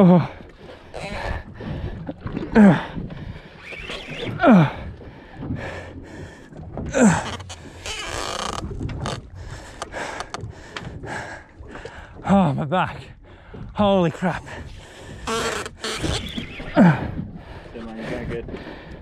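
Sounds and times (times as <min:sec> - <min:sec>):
man groaning with strain: 0:06.9 - 0:07.4.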